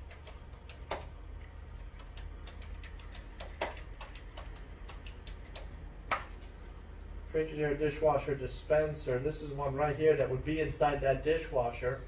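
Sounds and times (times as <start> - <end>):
keyboard typing clicks: 0.0 - 1.1, 1.9 - 6.3.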